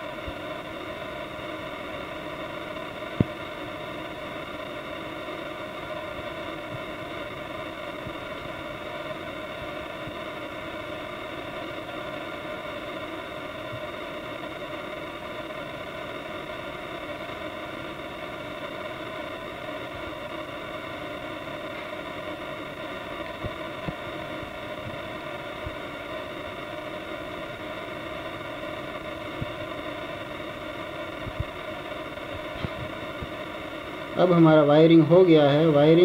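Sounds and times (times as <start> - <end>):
steady droning noise: 0.0 - 36.0.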